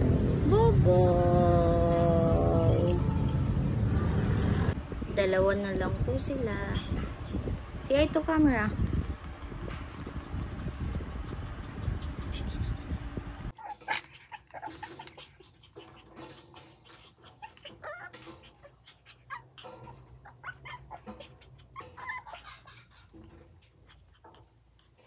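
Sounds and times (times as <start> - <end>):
low microphone rumble: 0.0 - 13.5
pawing at wire-mesh pen: 10.8 - 25.0
puppy whimpering and yipping: 11.3 - 25.0.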